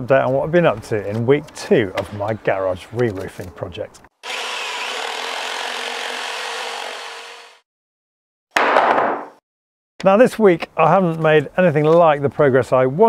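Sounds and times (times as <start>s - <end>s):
tool scraping along wood: 4.2s - 7.6s.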